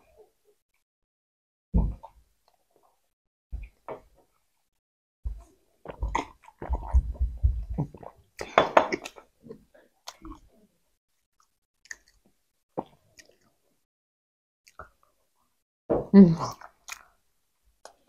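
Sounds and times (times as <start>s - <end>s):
close chewing mouth sounds: 5.8s - 9.3s, 11.3s - 13.6s, 16.5s - 17.2s.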